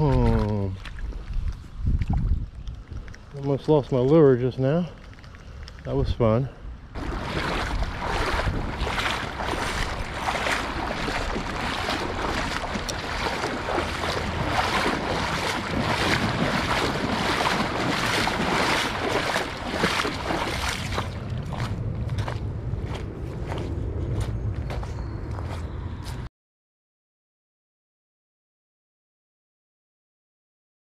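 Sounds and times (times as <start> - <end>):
boots sloshing through water: 0.0 - 3.6, 7.0 - 25.6.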